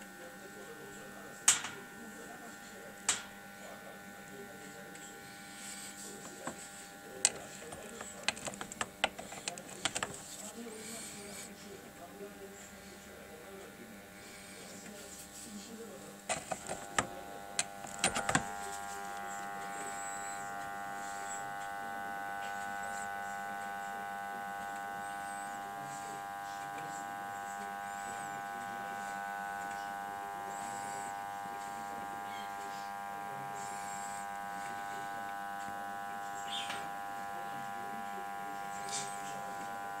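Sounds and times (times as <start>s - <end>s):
dishwasher pump motor buzzing: 0.0s - 40.0s
clicks: 7.2s - 10.4s.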